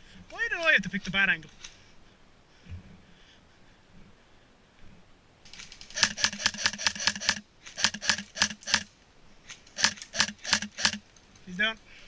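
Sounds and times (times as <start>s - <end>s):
airsoft rifle rapid shots: 5.5s - 8.9s, 9.8s - 11.0s.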